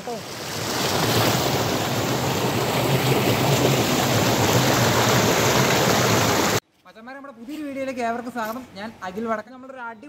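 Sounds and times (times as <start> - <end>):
river rushing over rocks: 0.0 - 6.6.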